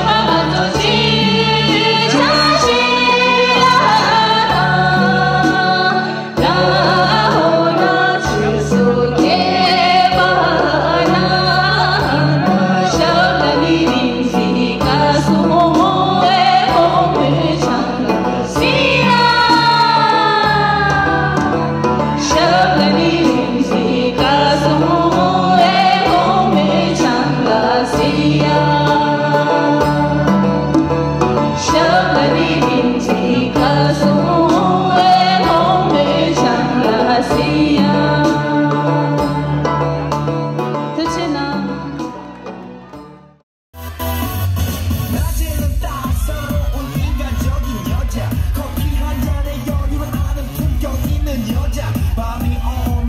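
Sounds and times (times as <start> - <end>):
woman singing into a microphone: 0.0 - 30.7, 31.4 - 40.1, 40.8 - 42.2
instrumental accompaniment: 0.0 - 53.0.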